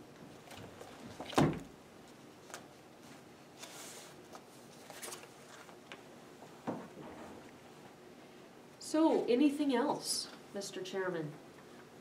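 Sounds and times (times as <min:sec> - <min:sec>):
paper rustle: 0:02.1 - 0:06.0.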